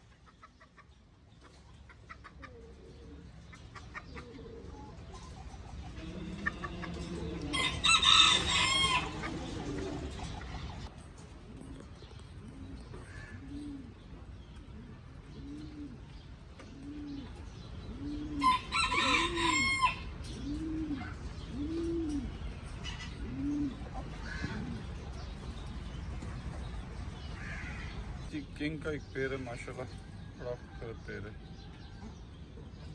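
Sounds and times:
pigeon cooing: 1.4 - 25.4
rooster crowing: 7.3 - 9.4, 18.4 - 20.1.

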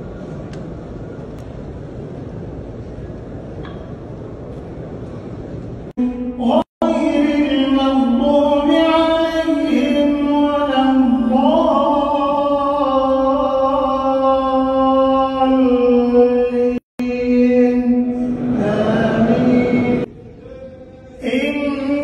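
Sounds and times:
man chanting melodic recitation: 6.0 - 22.0.

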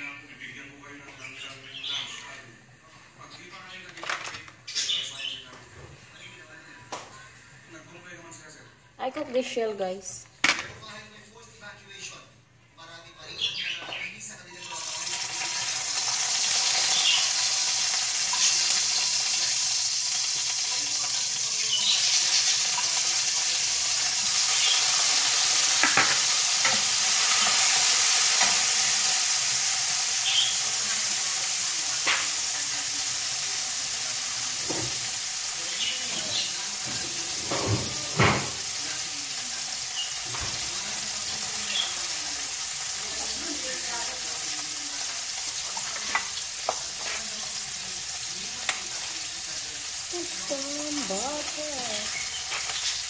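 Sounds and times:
food sizzling in a pan: 14.5 - 53.0.

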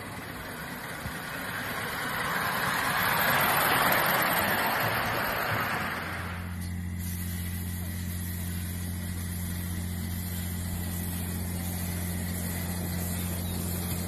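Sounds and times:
steam locomotive hissing: 0.0 - 14.0
steady low hum: 4.8 - 14.0.

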